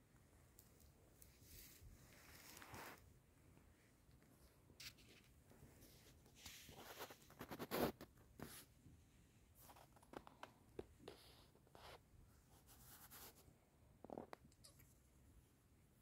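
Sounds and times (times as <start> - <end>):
kitten scratching a fleece blanket: 1.2 - 3.1, 4.8 - 8.8, 9.5 - 14.3.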